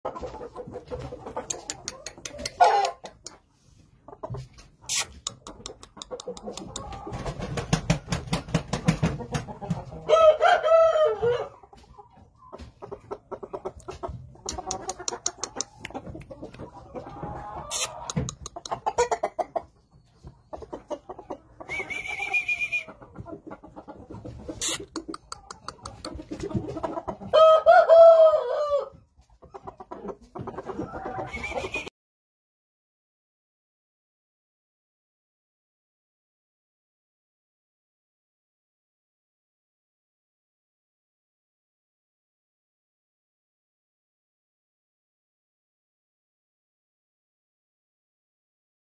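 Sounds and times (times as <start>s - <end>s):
rooster crowing: 10.1s - 11.5s, 27.4s - 28.9s.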